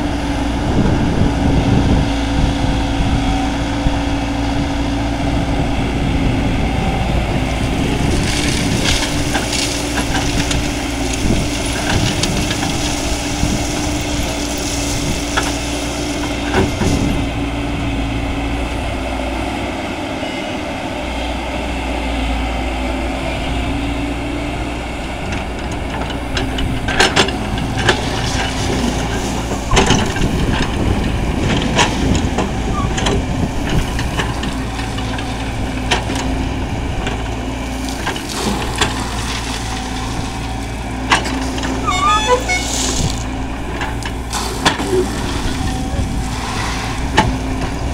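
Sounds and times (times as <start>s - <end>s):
excavator diesel engine running: 0.0s - 47.9s
crushed stone scraping and clattering: 7.9s - 17.2s, 37.2s - 47.9s.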